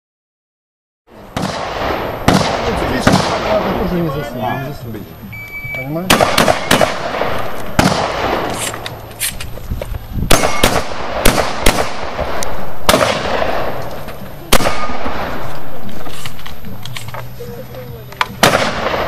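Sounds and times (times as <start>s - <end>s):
shotgun blasts echoing: 1.3s - 3.9s, 6.0s - 9.0s, 10.3s - 13.9s, 14.5s - 15.8s, 18.4s - 19.0s.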